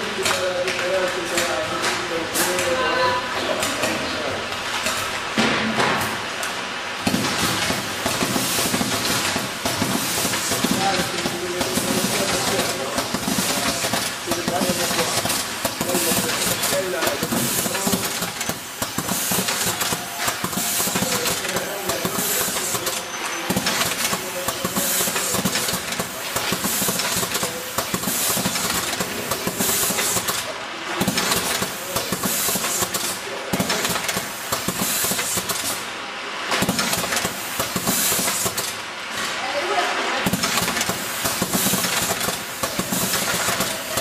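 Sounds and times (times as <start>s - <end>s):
machine mechanical clatter: 7.0s - 35.8s, 36.5s - 39.3s, 40.2s - 44.0s
pneumatic hissing: 7.4s - 35.9s, 36.6s - 38.8s, 40.2s - 44.0s.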